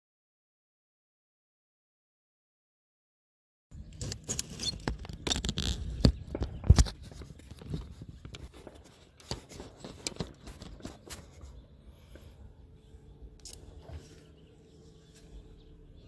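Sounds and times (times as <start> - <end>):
phone microphone handling noise: 4.0 - 11.6.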